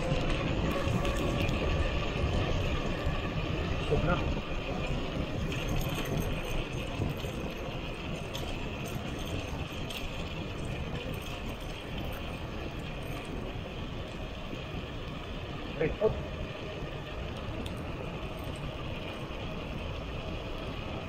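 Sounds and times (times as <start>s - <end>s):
bicycle road noise: 0.0s - 21.0s
faint ticks and rattles: 0.0s - 21.0s.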